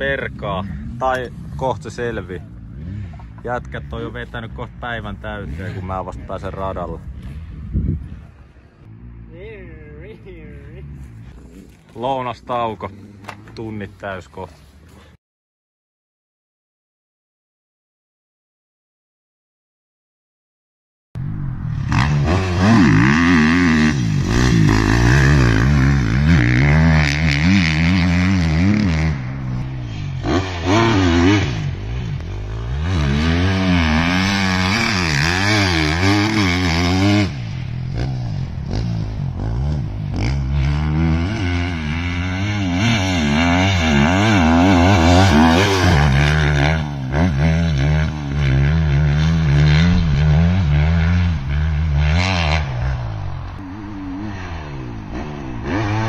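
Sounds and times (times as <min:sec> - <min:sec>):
dirt bike engine revving: 0:00.0 - 0:08.2, 0:21.3 - 0:56.0.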